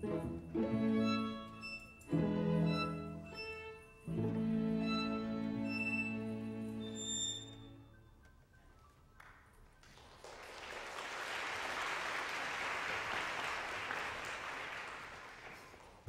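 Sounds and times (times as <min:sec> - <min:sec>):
audience applauding: 0:09.2 - 0:16.0.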